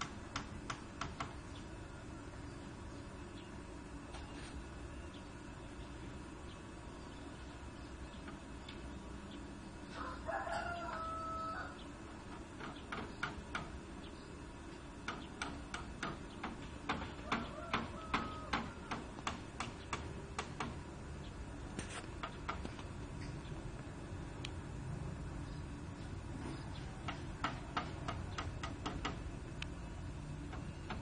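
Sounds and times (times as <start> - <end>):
rooster crowing: 9.9 - 11.9, 17.1 - 19.3.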